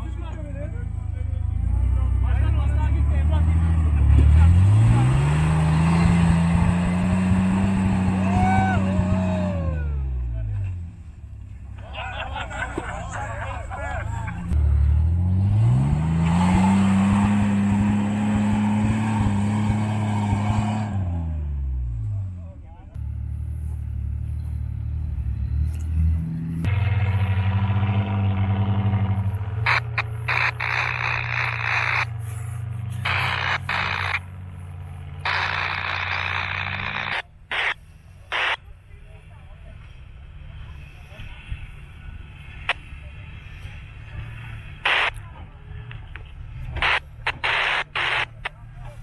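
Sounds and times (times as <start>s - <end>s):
engine revving: 0.8s - 10.7s, 14.2s - 22.4s, 23.0s - 38.6s, 42.4s - 45.2s, 46.6s - 49.0s
static-like hiss bursts: 29.7s - 32.1s, 33.0s - 34.2s, 35.3s - 38.6s, 44.8s - 45.1s, 46.8s - 48.4s.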